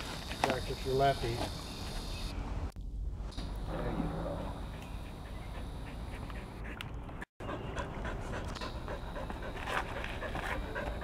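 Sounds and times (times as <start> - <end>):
dog panting: 4.6 - 11.0.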